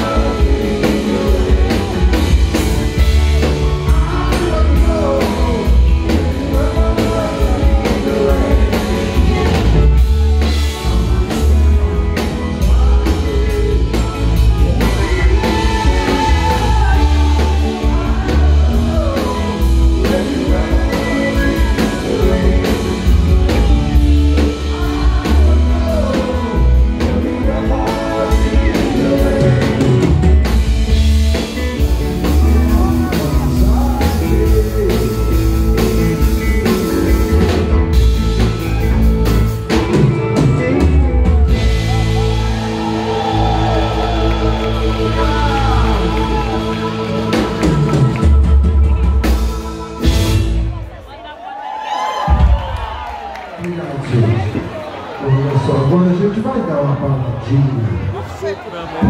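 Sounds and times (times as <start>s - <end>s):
lead vocal singing: 0.0s - 50.9s
drum kit: 0.0s - 51.0s, 52.2s - 53.2s
heavy bass: 0.0s - 51.2s
live rock band playing: 0.0s - 51.4s, 52.1s - 53.4s.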